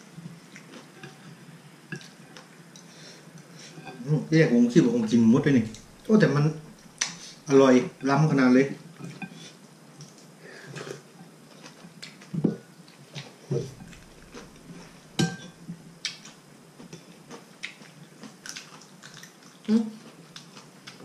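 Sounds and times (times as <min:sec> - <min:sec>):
chewing and slurping: 0:13.0 - 0:15.2.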